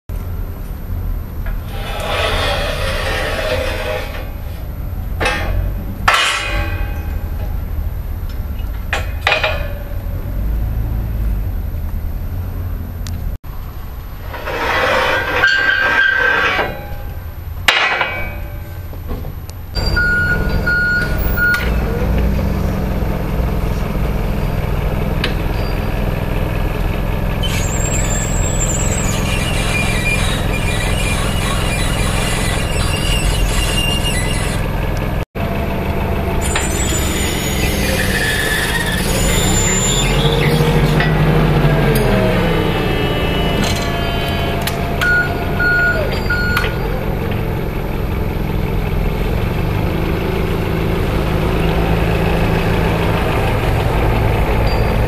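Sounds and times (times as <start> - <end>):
high whine: 0.1 - 50.7
forklift engine running: 0.1 - 55.0
metal hook clanking and scraping: 5.2 - 7.6.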